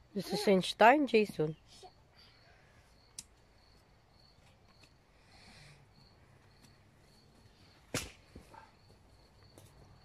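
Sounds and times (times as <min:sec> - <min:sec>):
faint high chirping: 0:01.5 - 0:07.8.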